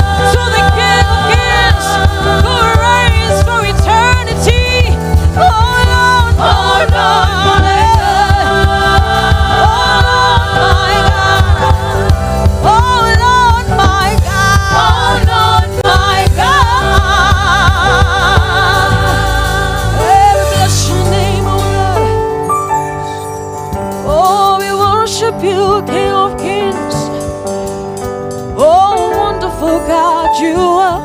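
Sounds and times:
woman singing gospel song: 0.0s - 22.4s, 24.0s - 27.3s, 28.6s - 31.0s
bass and drums backing: 0.0s - 31.0s.

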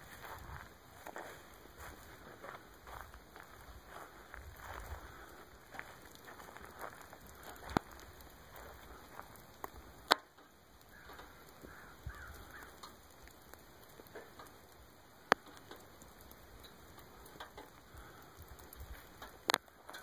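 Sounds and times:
meltwater and ice dripping: 0.0s - 20.0s
sharp clicks: 9.3s - 20.0s.

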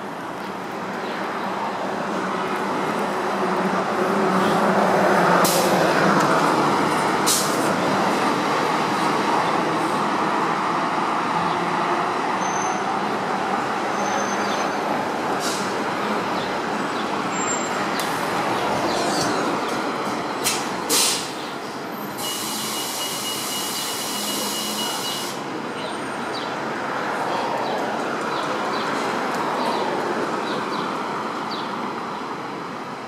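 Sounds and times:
bus diesel engine running: 2.5s - 10.6s, 15.0s - 26.0s
air brake hisses: 20.4s - 21.4s, 22.2s - 25.4s.

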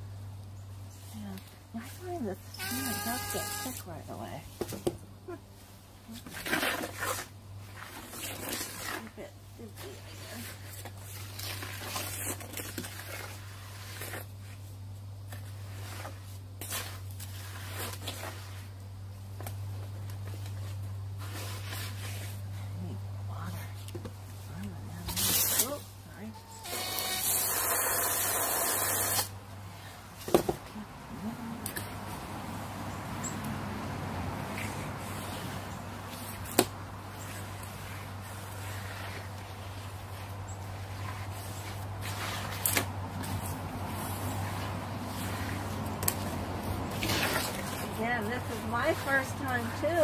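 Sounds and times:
steady low hum: 0.0s - 50.0s
wet concrete sloshing: 10.3s - 14.3s, 34.4s - 49.9s
hose spraying water: 26.7s - 29.3s.

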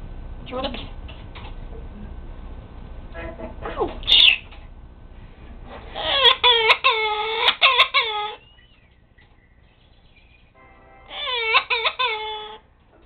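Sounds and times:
parrot mimicking crying: 4.0s - 4.4s, 5.9s - 8.8s, 11.0s - 12.7s.

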